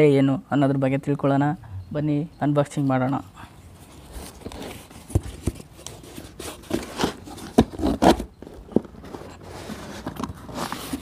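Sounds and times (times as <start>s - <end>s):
cardboard rustling: 3.8s - 11.0s
cardboard flaps knocking and scraping: 4.5s - 9.2s.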